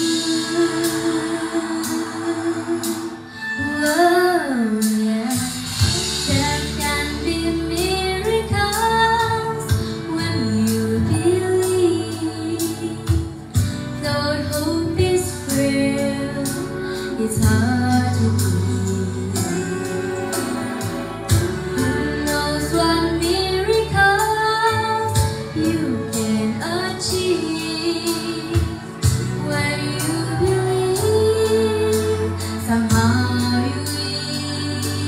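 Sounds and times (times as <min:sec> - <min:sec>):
girl singing into microphone: 0:00.0 - 0:35.0
instrumental backing track: 0:00.0 - 0:35.0.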